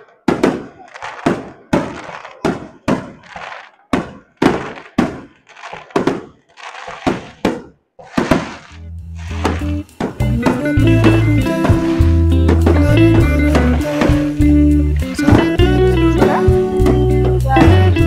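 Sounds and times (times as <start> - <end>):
fireworks bangs: 0.0 - 18.0
music: 8.8 - 18.0.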